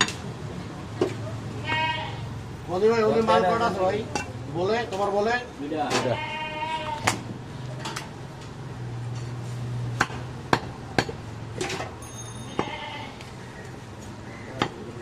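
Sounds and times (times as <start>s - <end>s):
cleaver chopping meat: 10.0s - 11.2s, 14.5s - 14.9s.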